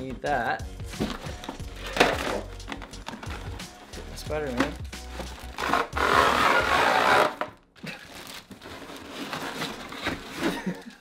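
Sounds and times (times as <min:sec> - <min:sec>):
cardboard scraping and sliding: 0:01.0 - 0:07.5, 0:08.6 - 0:10.8
rustling cardboard and plastic: 0:01.0 - 0:11.0.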